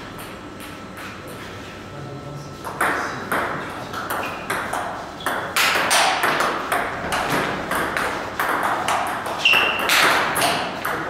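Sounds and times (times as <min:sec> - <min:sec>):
ball bouncing on table: 0:02.6 - 0:11.0
ping pong ball clicking off bats: 0:02.6 - 0:11.0.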